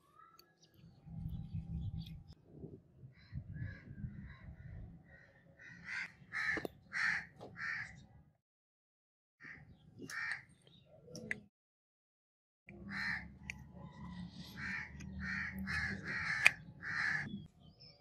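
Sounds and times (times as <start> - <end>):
bird calling: 14.4 - 17.5.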